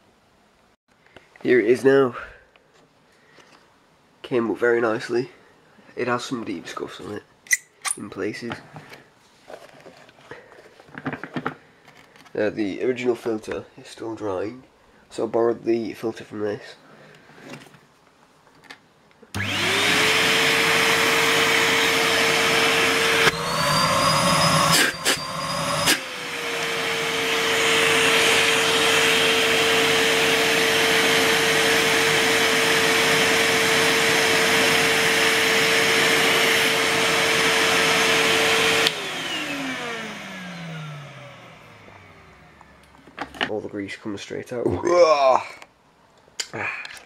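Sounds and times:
vacuum cleaner running: 0:19.3 - 0:42.8
vacuum motor winding down: 0:19.3 - 0:42.8.

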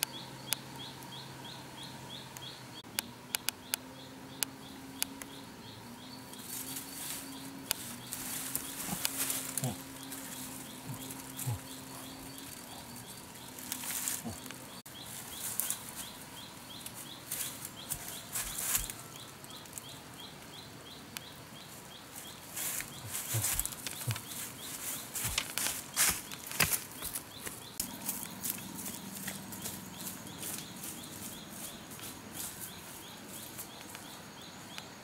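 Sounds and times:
ferns and sticks rustling: 0:06.2 - 0:20.5, 0:21.6 - 0:34.1.

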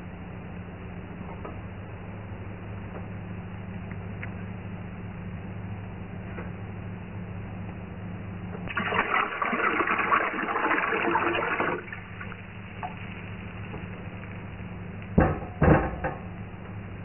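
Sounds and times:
liquid pouring into metal pot: 0:08.7 - 0:13.0.

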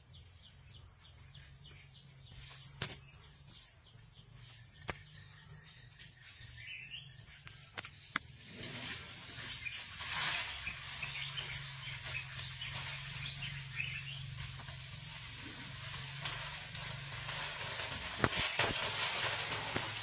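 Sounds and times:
bird chirps: 0:00.0 - 0:16.1
steady hiss: 0:07.8 - 0:20.0
elephant snapping through undergrowth: 0:14.4 - 0:20.0.

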